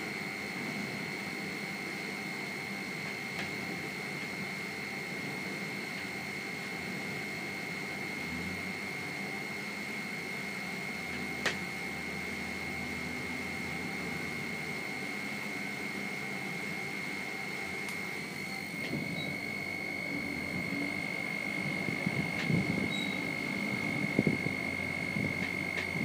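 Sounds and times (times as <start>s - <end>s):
high-pitched alarm buzzer: 10.8s - 26.0s.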